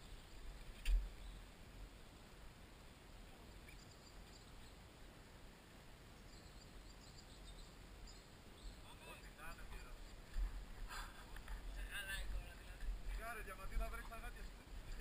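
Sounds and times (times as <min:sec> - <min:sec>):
faint bird chirps: 0:00.0 - 0:01.5, 0:03.2 - 0:04.9, 0:06.1 - 0:09.9
faint outdoor hiss: 0:00.0 - 0:15.0.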